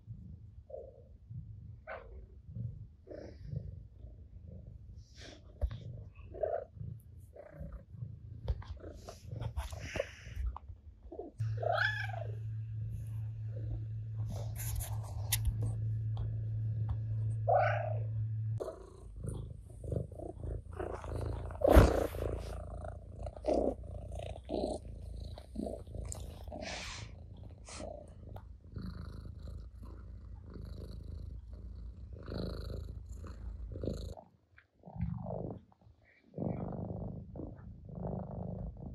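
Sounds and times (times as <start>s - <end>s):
cat purring: 0.0s - 38.9s
cat meowing: 11.6s - 12.4s.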